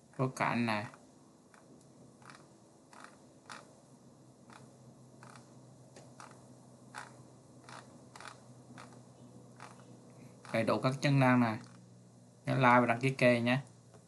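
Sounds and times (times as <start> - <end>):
low steady hum: 0.0 - 14.0
computer mouse clicks: 0.9 - 3.7, 4.5 - 10.6.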